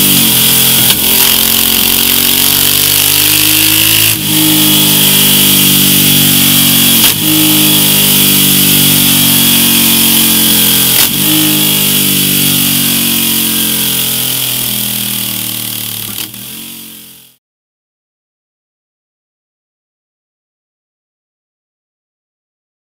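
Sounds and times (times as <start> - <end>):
motorcycle engine running: 0.0 - 17.4.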